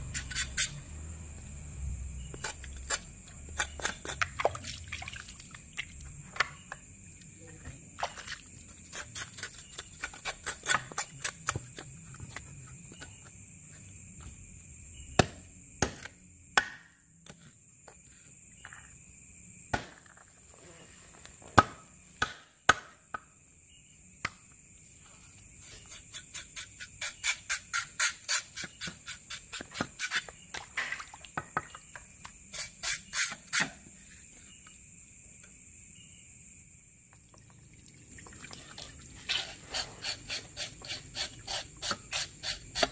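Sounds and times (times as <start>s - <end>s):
insects trilling: 0.0s - 42.9s
knife scraping fish: 0.1s - 0.8s, 39.3s - 42.9s.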